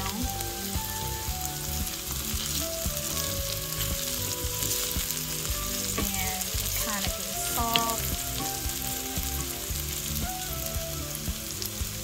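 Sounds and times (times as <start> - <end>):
vegetables sizzling in a skillet: 0.0 - 12.0
wooden spoon scraping a pan: 1.9 - 9.1.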